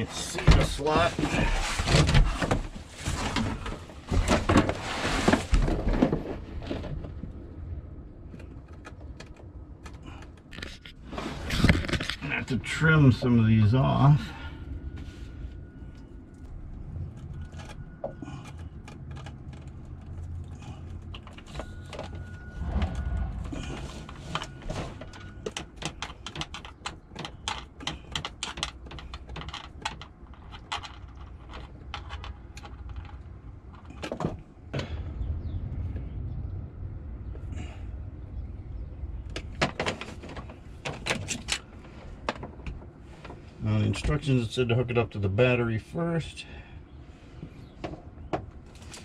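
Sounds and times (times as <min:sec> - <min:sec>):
steady low rumble: 0:00.0 - 0:25.8, 0:31.6 - 0:39.6
hand tools clicking and snipping wire: 0:24.3 - 0:32.8.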